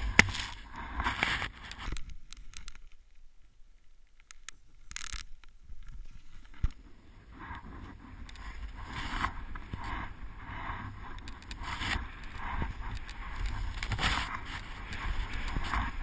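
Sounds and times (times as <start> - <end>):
wind rumble on microphone: 5.7 - 16.0.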